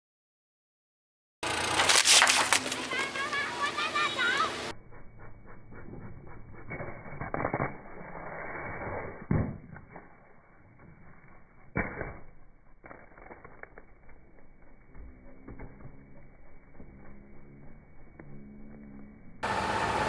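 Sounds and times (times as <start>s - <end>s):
plastic crackling: 1.7s - 3.4s.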